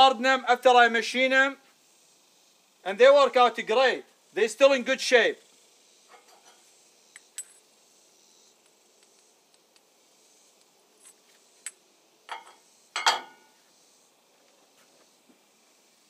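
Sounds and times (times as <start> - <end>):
metal clanks: 12.3 - 13.5
steel parts clinking: 12.3 - 13.5.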